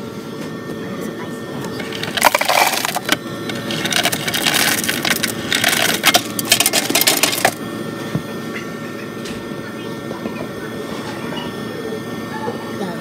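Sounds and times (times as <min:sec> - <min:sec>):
ice cubes clinking: 0:01.8 - 0:07.6.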